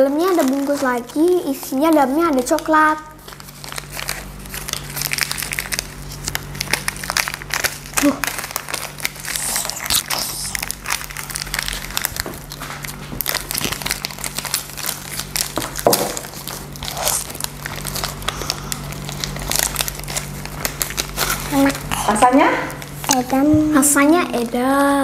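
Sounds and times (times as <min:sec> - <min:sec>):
plastic wrappers crinkling: 0:00.0 - 0:25.0.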